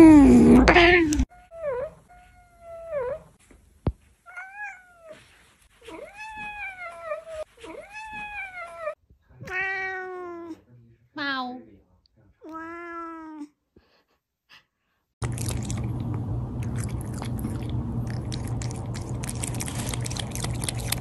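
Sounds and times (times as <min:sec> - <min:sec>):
cats meowing: 0:05.9 - 0:10.6, 0:12.4 - 0:13.5.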